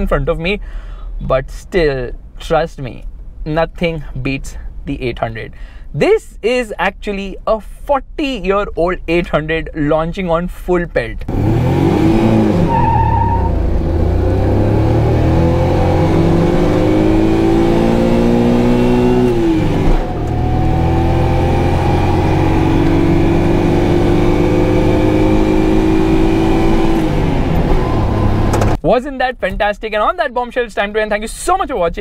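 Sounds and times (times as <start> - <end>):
car engine at full throttle: 11.2 - 28.8.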